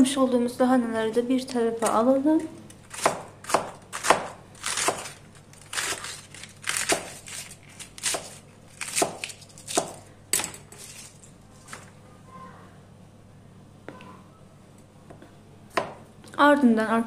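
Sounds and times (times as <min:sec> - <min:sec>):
knife slicing cabbage: 0:02.9 - 0:10.1.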